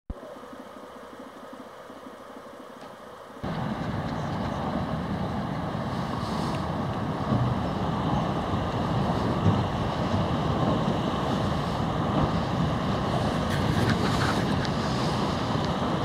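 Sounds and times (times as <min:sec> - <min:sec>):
ship engine low drone: 0:00.1 - 0:16.0
broken ice rushing along hull: 0:03.4 - 0:16.0
wind on microphone: 0:03.4 - 0:16.0.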